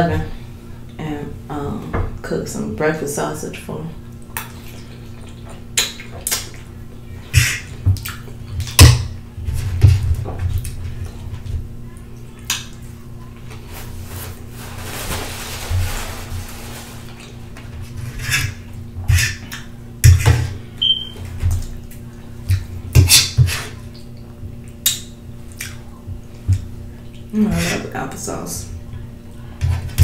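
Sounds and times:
wet chewing and mouth noises: 0:04.1 - 0:08.8, 0:10.5 - 0:11.3, 0:20.8 - 0:27.3.

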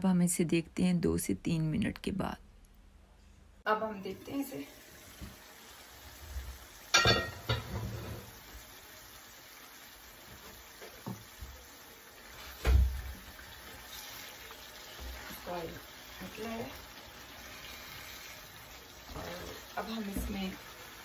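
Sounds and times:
curry bubbling and sizzling: 0:04.1 - 0:21.0
spatula knocking in pan: 0:06.9 - 0:07.8
pan lid clanking: 0:06.9 - 0:08.1.

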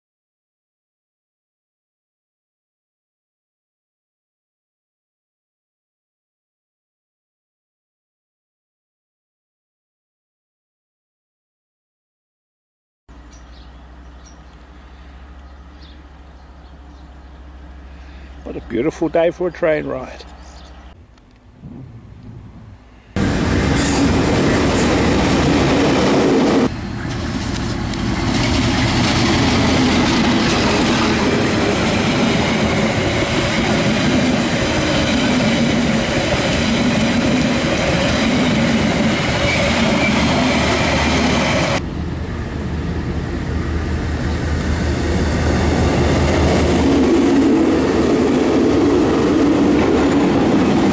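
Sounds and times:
trains passing close by: 0:13.1 - 0:21.0, 0:22.7 - 0:50.9
engine and wheels rumbling on rails: 0:13.1 - 0:50.9.

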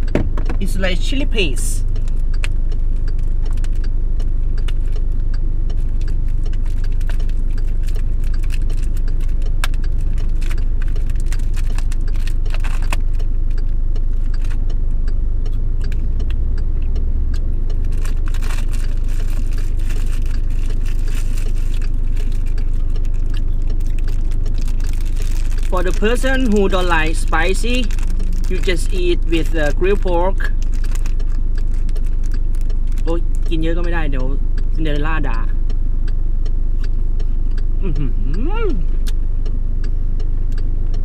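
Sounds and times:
car engine idling: 0:00.0 - 0:41.0
plastic bags crinkling: 0:05.8 - 0:13.2, 0:17.8 - 0:33.4.

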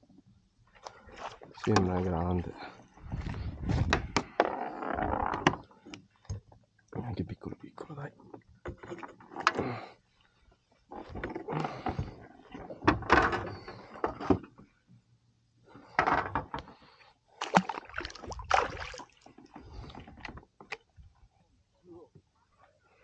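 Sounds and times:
gear rustling and knocking on kayak: 0:03.0 - 0:05.7.

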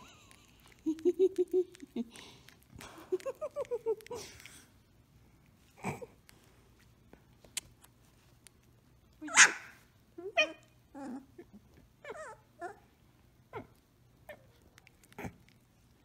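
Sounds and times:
puppy yipping and whining: 0:09.2 - 0:11.4, 0:12.0 - 0:12.9
puppy barking: 0:09.3 - 0:09.8.

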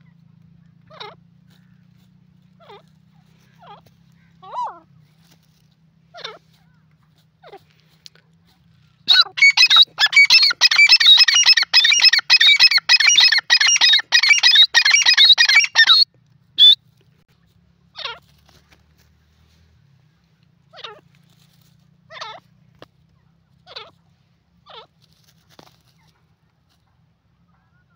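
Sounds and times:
francolin calling: 0:09.1 - 0:16.0.

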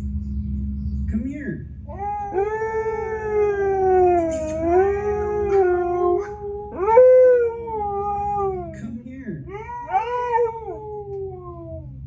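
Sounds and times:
husky howling: 0:01.9 - 0:08.8, 0:09.5 - 0:12.0.

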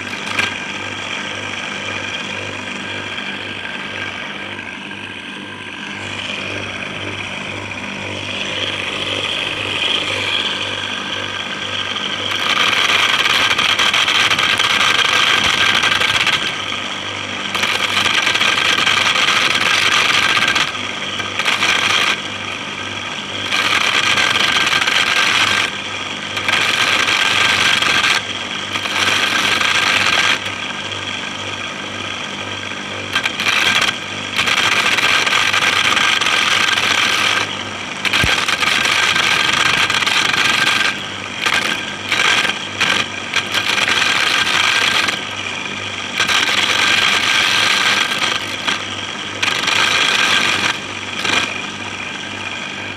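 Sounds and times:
corn kernels rattling and grinding: 0:00.0 - 0:52.7
electric motor humming: 0:00.0 - 0:52.9.

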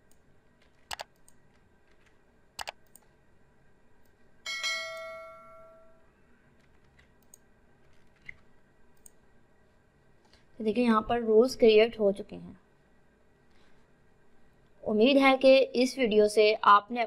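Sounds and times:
computer clicks: 0:00.0 - 0:03.1, 0:06.6 - 0:09.2
bell-like chime: 0:04.5 - 0:06.0.

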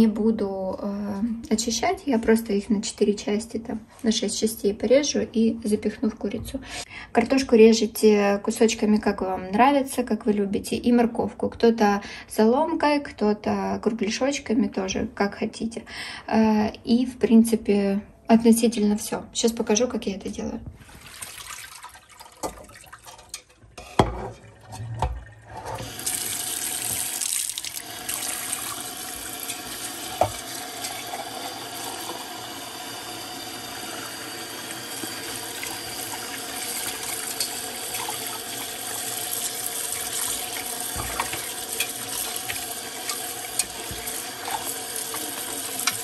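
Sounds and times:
knocks and splashes in sink: 0:20.7 - 0:26.2, 0:30.2 - 0:30.5, 0:40.0 - 0:46.0
tap water splashing into a pot: 0:20.8 - 0:32.3, 0:35.6 - 0:46.0.

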